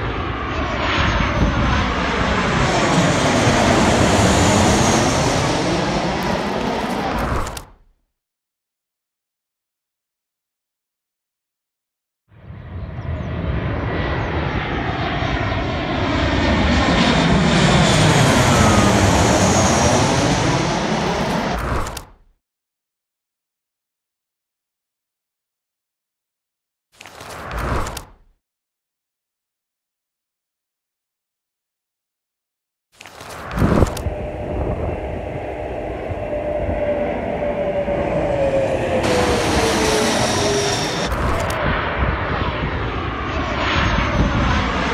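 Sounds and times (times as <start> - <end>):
jet airliner passing overhead: 0.0 - 7.7, 12.3 - 22.0, 33.2 - 44.9.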